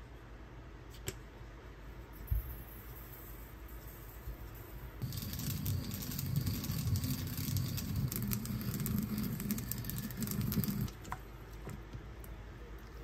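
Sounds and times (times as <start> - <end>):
pestle grinding seeds in bowl: 5.0 - 10.9.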